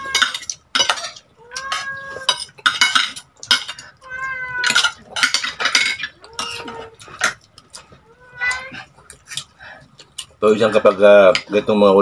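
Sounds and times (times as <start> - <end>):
cat meowing: 0.0 - 0.4, 1.0 - 2.4, 3.9 - 5.0, 6.1 - 7.0, 8.0 - 8.9
cutlery clinking on a plate: 0.0 - 4.0, 4.6 - 7.9.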